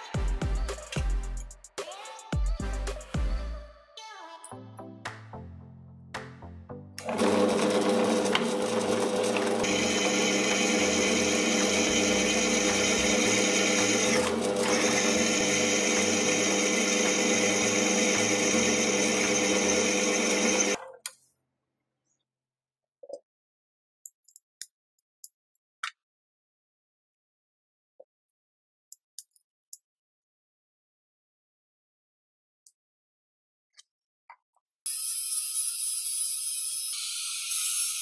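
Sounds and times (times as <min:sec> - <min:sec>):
drill press motor hum: 0:07.0 - 0:20.8
drill bit cutting squeal: 0:09.6 - 0:20.8, 0:34.9 - 0:38.0.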